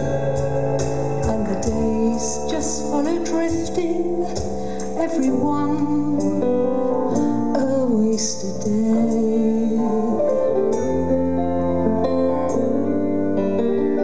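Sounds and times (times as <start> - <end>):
guitar: 0.0 - 14.0
keyboard chords: 0.0 - 14.0
violin melody: 0.0 - 14.0.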